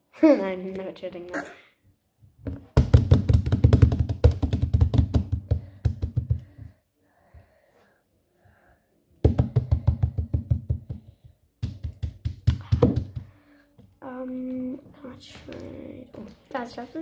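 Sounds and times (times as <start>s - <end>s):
hands slapping a tabletop: 2.5s - 6.7s, 9.2s - 13.4s.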